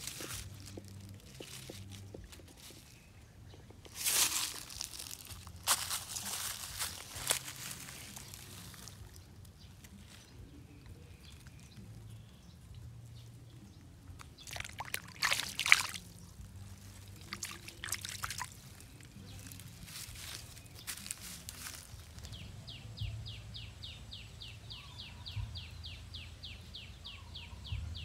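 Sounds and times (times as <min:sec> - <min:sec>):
shallow water splashing: 0:14.4 - 0:16.2, 0:17.0 - 0:18.7.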